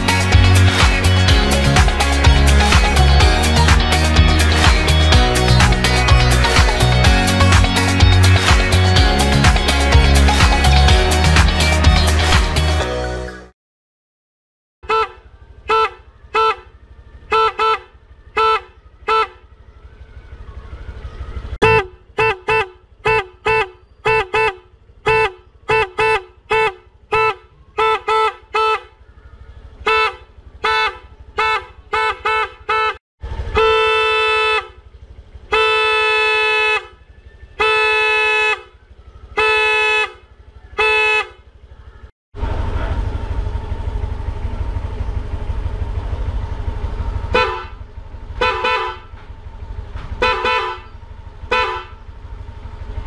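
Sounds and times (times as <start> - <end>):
scooter horn tooting: 14.8 - 19.6, 21.0 - 42.1, 43.8 - 53.0.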